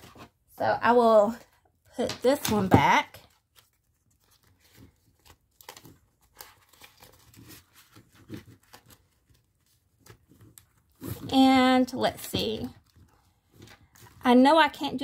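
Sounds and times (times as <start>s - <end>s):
plastic envelope crinkling: 3.2s - 14.8s
paper bills rustling: 3.4s - 11.2s.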